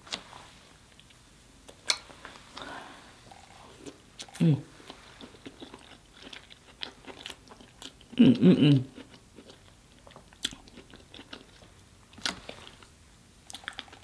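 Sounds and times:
chewing and lip smacks: 0:03.3 - 0:08.2, 0:08.9 - 0:14.0.

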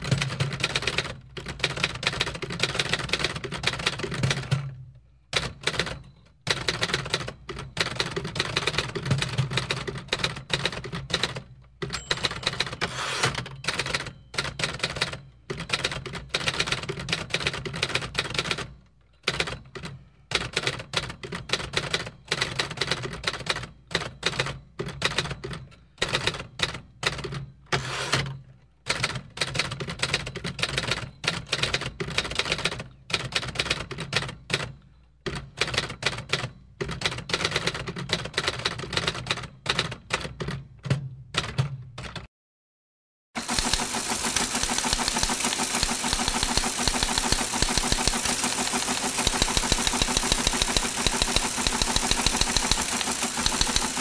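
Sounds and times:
typewriter key clicks: 0:43.4 - 0:54.0.

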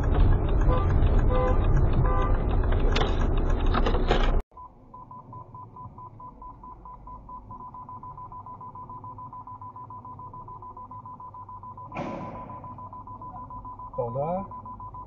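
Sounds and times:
road and engine noise: 0:00.0 - 0:15.0
rapid electronic beeping: 0:04.6 - 0:15.0
short electronic beeps: 0:04.6 - 0:15.0.

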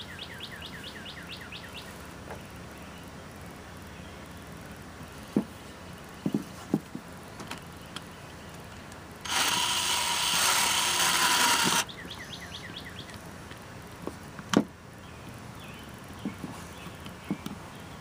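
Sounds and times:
cordless drill boring: 0:09.2 - 0:11.9.

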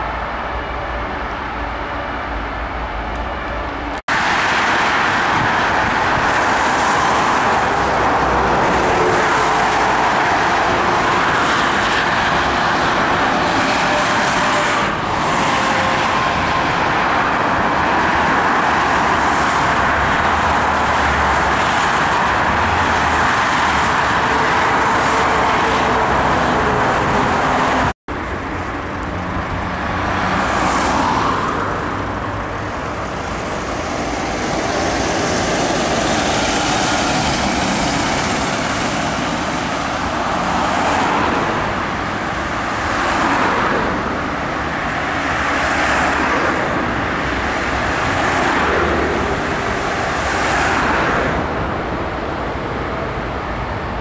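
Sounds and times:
dense motorway traffic: 0:00.0 - 0:54.0
quiet road ambience: 0:00.0 - 0:54.0.

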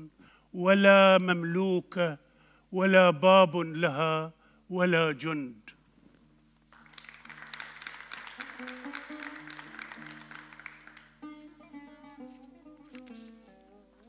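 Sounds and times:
audience applauding: 0:06.7 - 0:11.2
plucked string instrument melody: 0:11.2 - 0:14.0.

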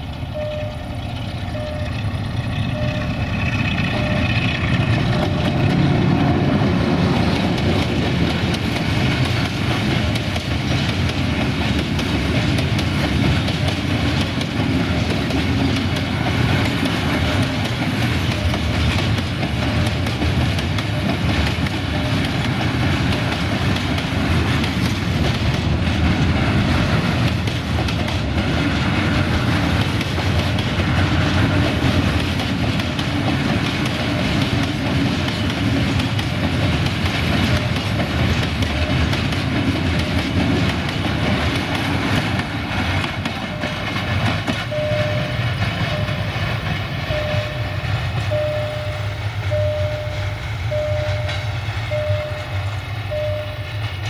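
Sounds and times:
wheels clattering over rail joints: 0:00.0 - 0:48.5
freight train rumbling past: 0:00.0 - 0:54.0
short repeated beep: 0:00.4 - 0:02.0, 0:02.7 - 0:03.3, 0:03.9 - 0:04.4, 0:44.7 - 0:46.3, 0:47.1 - 0:53.8.

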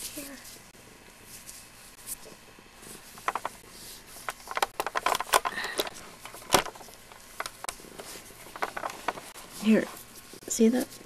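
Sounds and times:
crackling handling clicks: 0:04.2 - 0:07.8.

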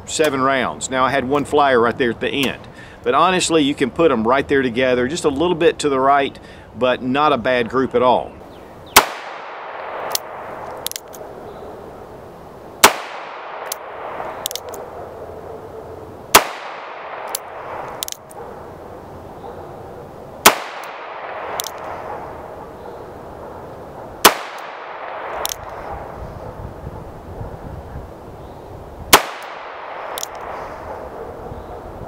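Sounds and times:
revolver gunshots: 0:08.9 - 0:11.4, 0:12.8 - 0:14.9, 0:16.3 - 0:18.7, 0:20.4 - 0:22.6, 0:24.2 - 0:25.9, 0:29.1 - 0:30.9
revolver hammer cocking clicks: 0:09.0 - 0:11.2, 0:12.8 - 0:14.8, 0:16.4 - 0:18.4, 0:20.5 - 0:21.9, 0:24.2 - 0:25.8, 0:29.2 - 0:30.6.

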